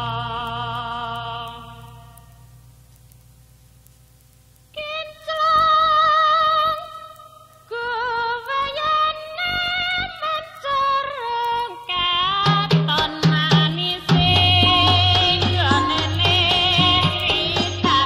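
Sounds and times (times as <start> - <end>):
woman singing: 0.0 - 2.3, 4.7 - 18.0
drum strikes: 12.5 - 18.0.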